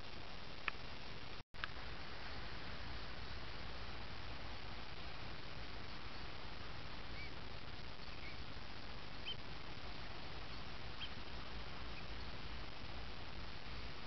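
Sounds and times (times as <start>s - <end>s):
steady hiss: 0.0s - 14.0s
faint bird calls: 7.0s - 8.6s, 9.2s - 12.4s.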